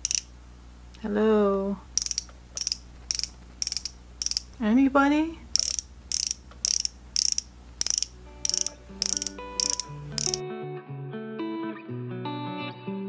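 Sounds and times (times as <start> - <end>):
makeup pen ratcheting clicks: 0.0 - 0.3, 1.9 - 4.6, 5.5 - 10.4
soft plucked guitar music: 8.1 - 13.0.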